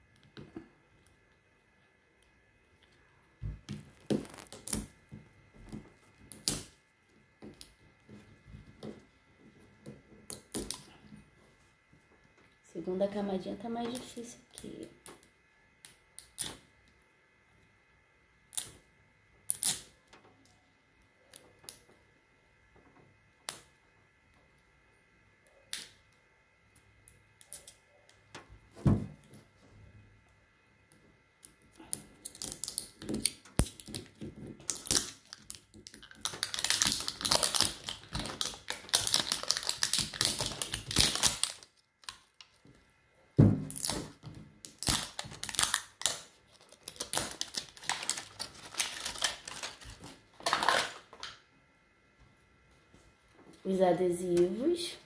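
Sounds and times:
paper and plastic wrapping crinkling: 0:03.8 - 0:04.9, 0:32.2 - 0:42.8, 0:43.8 - 0:51.4.

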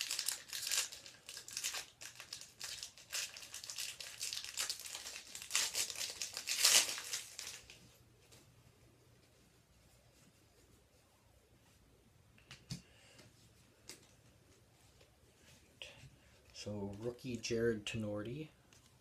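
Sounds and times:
card pack wrapper tearing and crinkling: 0:00.0 - 0:07.8.

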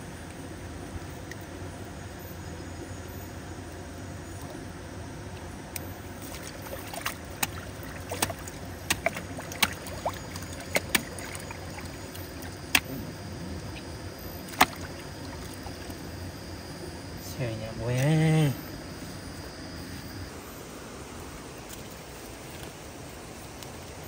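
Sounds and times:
steady low background noise: 0:00.0 - 0:24.0
water sloshing and trickling: 0:04.2 - 0:18.2
sharp clicks or small splashes: 0:05.8 - 0:13.0, 0:14.5 - 0:15.9.

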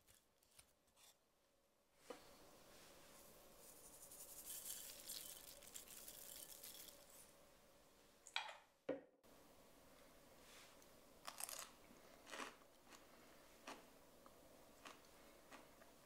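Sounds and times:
seeds pattering: 0:04.0 - 0:07.2.

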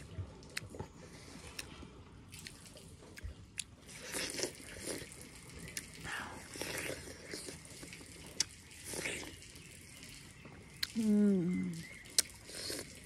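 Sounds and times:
crunchy biting into watermelon: 0:00.0 - 0:09.4, 0:12.1 - 0:13.0
wet chewing clicks: 0:00.0 - 0:13.0.

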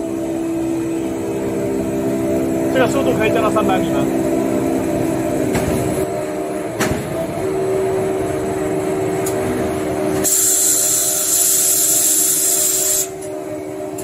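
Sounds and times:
machine hum: 0:00.0 - 0:14.0
loud high hiss: 0:10.2 - 0:13.2.

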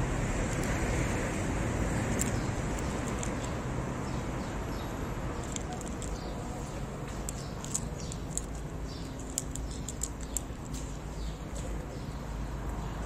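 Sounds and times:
street traffic: 0:00.0 - 0:13.0
cat crunching dry kibble: 0:00.4 - 0:00.8, 0:01.9 - 0:03.6, 0:05.3 - 0:11.6.

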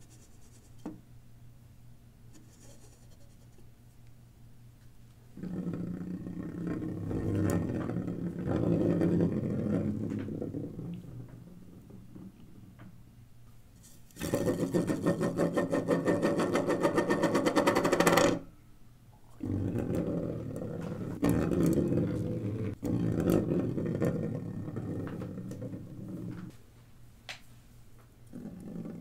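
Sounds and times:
wheel rolling rumble: 0:19.4 - 0:26.5.

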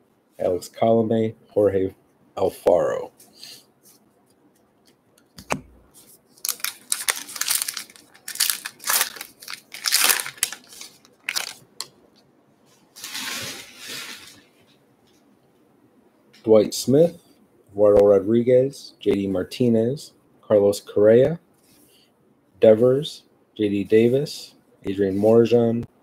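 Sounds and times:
soft smooth rustle: 0:03.1 - 0:04.7, 0:12.1 - 0:15.4, 0:21.5 - 0:22.1
foil wrapper tearing and crinkling: 0:06.4 - 0:11.6.

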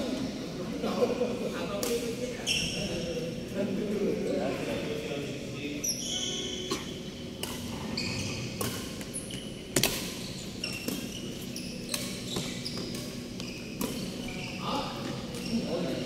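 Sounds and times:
shoes squeaking on court: 0:02.3 - 0:03.1, 0:05.8 - 0:16.0
rackets hitting shuttlecock: 0:07.4 - 0:07.7, 0:08.6 - 0:10.2.

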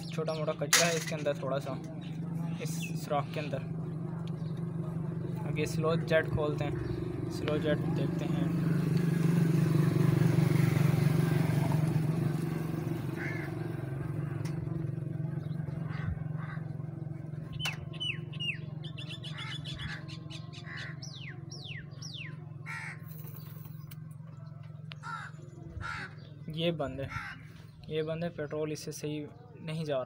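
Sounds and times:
engine humming: 0:00.0 - 0:27.9
bird chirping: 0:13.6 - 0:28.6.

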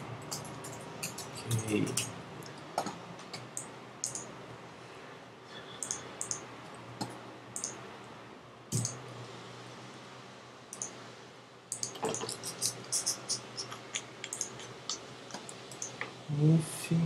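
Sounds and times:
faint steady hum: 0:00.0 - 0:17.0
computer keyboard clicks: 0:02.8 - 0:04.3, 0:05.8 - 0:06.4, 0:07.0 - 0:07.8, 0:08.7 - 0:09.0, 0:11.7 - 0:12.8, 0:13.6 - 0:16.1
mouse clicks: 0:03.6 - 0:04.3, 0:05.8 - 0:06.4, 0:08.8 - 0:09.0, 0:11.7 - 0:12.2, 0:14.3 - 0:16.0.

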